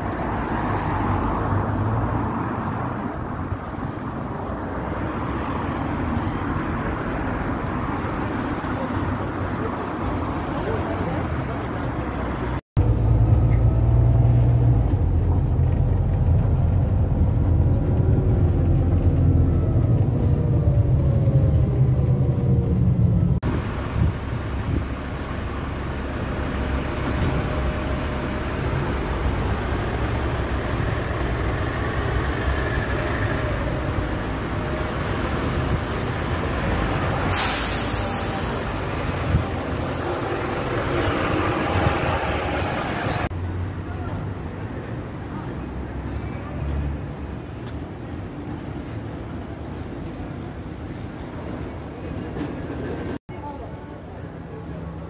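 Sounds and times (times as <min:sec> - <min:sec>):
city street traffic noise: 0:00.0 - 0:55.0
heavy vehicle engine rumble: 0:00.0 - 0:55.0
loud hiss of air: 0:37.2 - 0:40.2.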